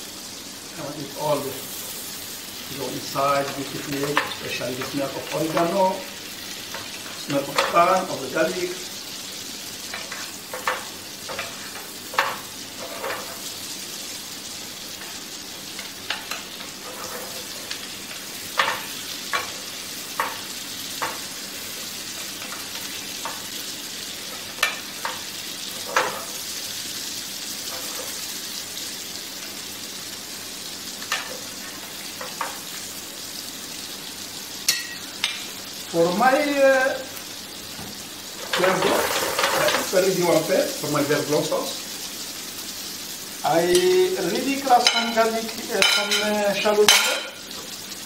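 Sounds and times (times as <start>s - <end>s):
fish sizzling in butter: 0.0s - 48.0s
utensil scraping a pan: 9.9s - 13.5s, 15.8s - 19.6s.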